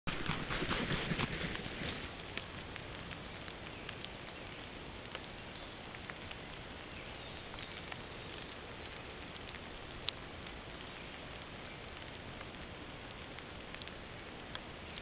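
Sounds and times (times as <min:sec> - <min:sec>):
eagle wings beating: 0:00.1 - 0:02.1
outdoor hiss: 0:00.1 - 0:15.0
faint ticks and taps: 0:02.2 - 0:15.0.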